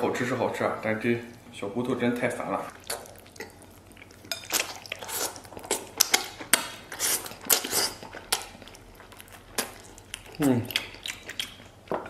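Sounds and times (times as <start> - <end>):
person chewing and slurping: 2.6 - 12.0.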